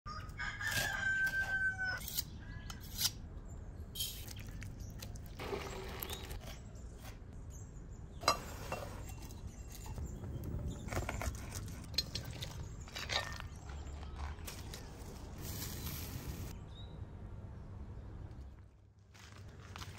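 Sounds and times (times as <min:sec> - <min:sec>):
rooster crowing: 0:00.1 - 0:02.0.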